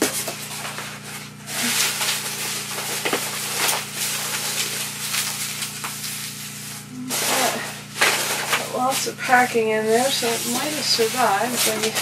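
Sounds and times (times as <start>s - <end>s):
bubble wrap crinkling and rustling: 0.0s - 12.0s.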